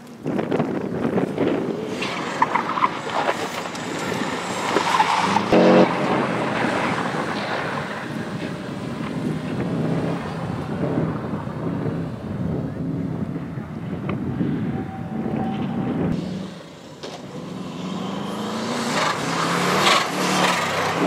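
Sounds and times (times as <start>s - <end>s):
tyre squeals: 1.9s - 6.0s
car engine revving hard: 3.6s - 7.2s, 16.2s - 21.0s.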